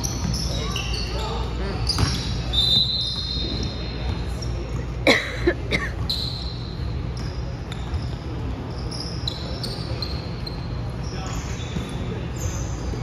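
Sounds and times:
sneaker squeaks: 0.0 - 5.0, 5.7 - 13.0
basketball bouncing on hardwood floor: 2.0 - 2.2.

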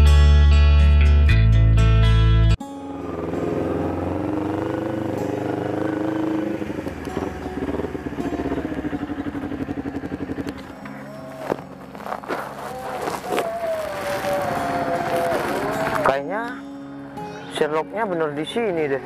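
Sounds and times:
motorcycle engine at low revs: 2.9 - 13.8.

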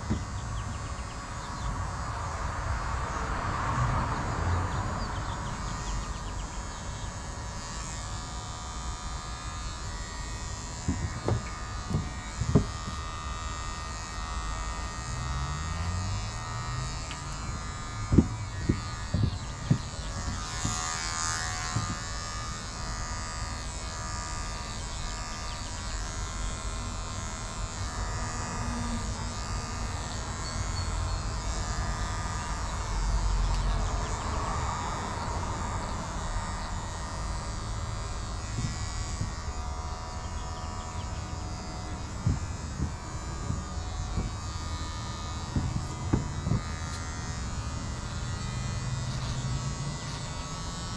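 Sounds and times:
electric hair clippers buzzing: 0.0 - 50.9.

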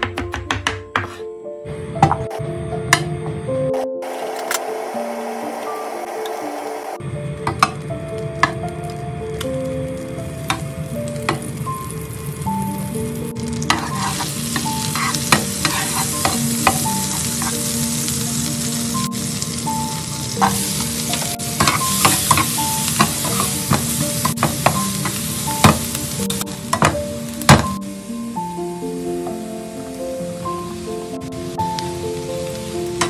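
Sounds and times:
onions sizzling: 3.6 - 33.0
butter sizzling in frying pan: 4.0 - 28.2
spatula scraping pan: 13.6 - 17.6, 20.4 - 25.2.

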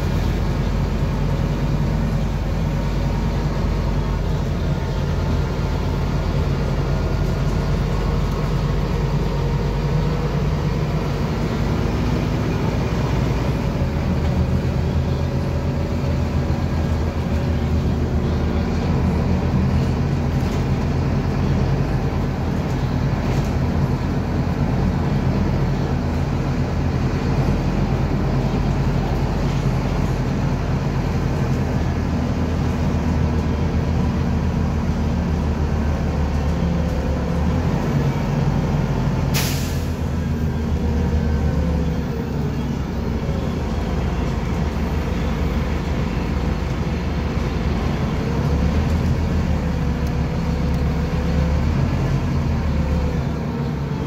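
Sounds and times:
bus diesel engine running: 0.0 - 54.0
air brake hiss: 39.3 - 40.1.

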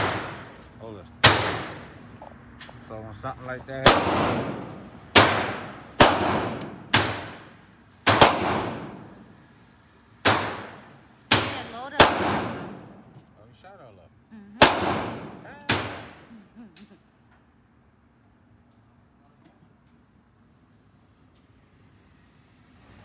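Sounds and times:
gunshots reverberating indoors: 0.0 - 0.6, 1.2 - 1.9, 3.8 - 9.4, 10.2 - 13.0, 14.6 - 16.3.

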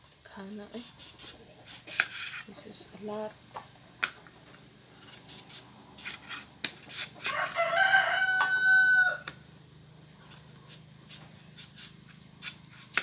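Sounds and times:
rooster crowing: 7.2 - 9.4.

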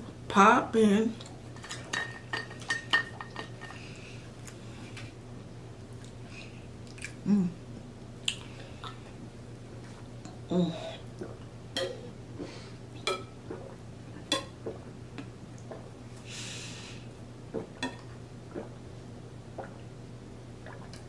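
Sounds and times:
low hums: 3.6 - 21.0
person gulping water: 10.3 - 16.0, 17.5 - 18.8, 19.5 - 19.9, 20.6 - 21.0.

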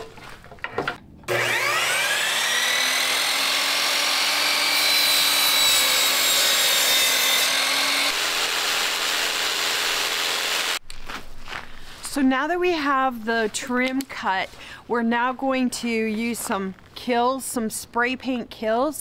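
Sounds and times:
jigsaw cutting plastic trim: 1.3 - 10.8
miter saw motor whining: 1.3 - 10.8.

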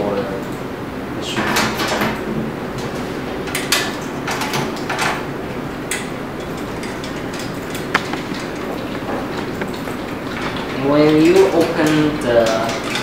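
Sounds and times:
clicks and light knocks: 5.9 - 13.0.

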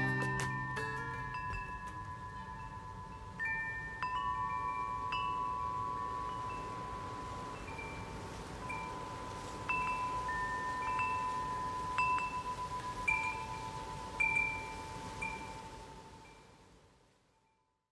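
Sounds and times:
chimes ringing: 0.0 - 16.4
wind-like hiss: 0.0 - 17.7.

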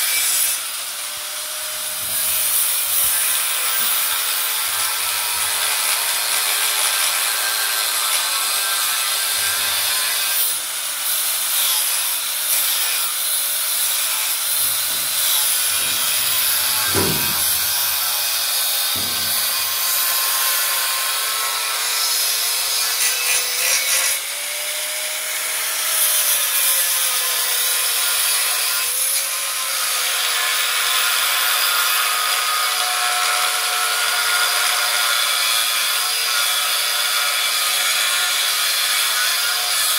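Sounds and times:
angle grinder grinding metal: 0.0 - 39.9
low knocks: 14.5 - 18.3, 18.9 - 19.9.

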